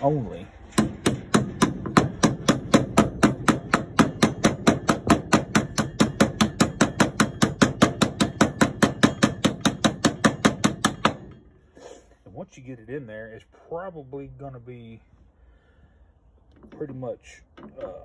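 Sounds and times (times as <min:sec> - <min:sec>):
hammer tapping steel bearing: 0:00.7 - 0:11.4.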